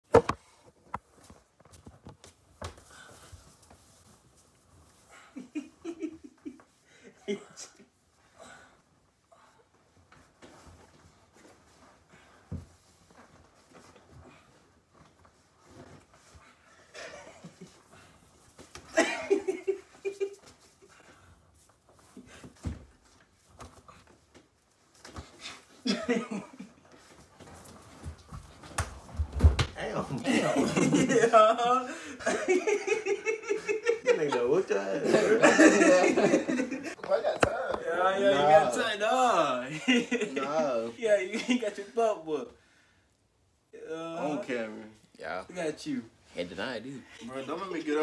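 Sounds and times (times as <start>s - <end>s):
soft taps and shuffling: 0.2s - 5.1s
young man laughing: 18.9s - 20.4s, 30.2s - 37.0s.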